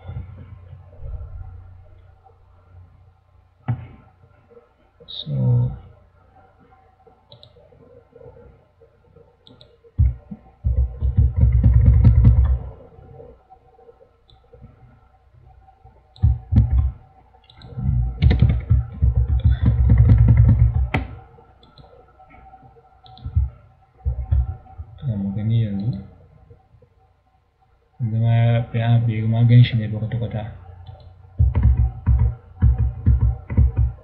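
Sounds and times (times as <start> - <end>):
mouse clicking: 7.3 - 7.6, 9.4 - 12.7, 16.1 - 24.8, 30.8 - 34.0
keyboard typing: 9.2 - 13.3, 16.1 - 25.1, 30.8 - 34.0.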